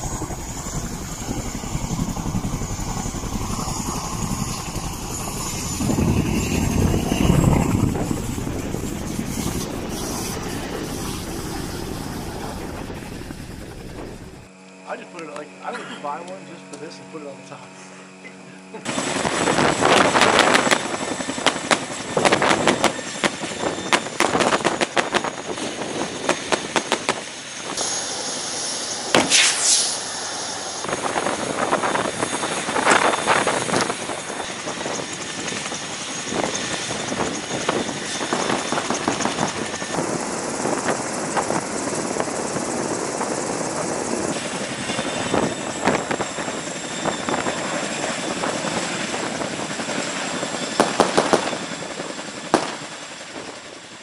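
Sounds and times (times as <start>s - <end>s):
rotor and engine rush: 0.0s - 14.5s
helicopter turbine whine: 0.0s - 54.0s
sharp cracks: 29.1s - 30.0s.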